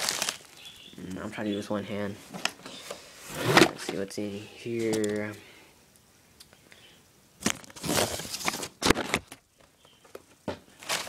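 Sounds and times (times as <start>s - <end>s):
paper rustling and crinkling: 0.0s - 0.6s, 7.4s - 9.4s, 10.7s - 11.0s.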